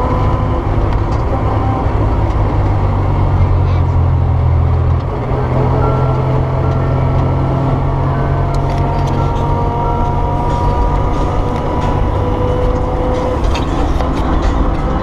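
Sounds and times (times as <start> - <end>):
drivetrain gear whine: 0.0 - 15.0
engine and road rumble: 0.0 - 15.0.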